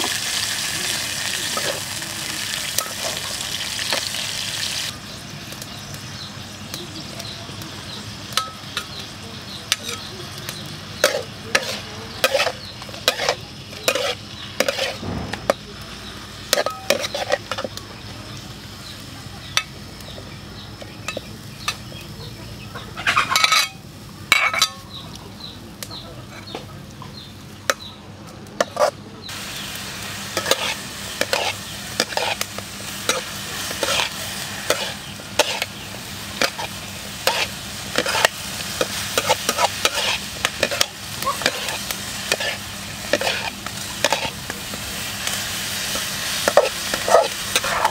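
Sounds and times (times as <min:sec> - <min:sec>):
vegetables sizzling: 0:00.0 - 0:26.0, 0:28.6 - 0:47.9
metal spatula scraping a wok: 0:11.0 - 0:17.8, 0:23.0 - 0:24.9, 0:28.6 - 0:29.0, 0:30.3 - 0:47.9.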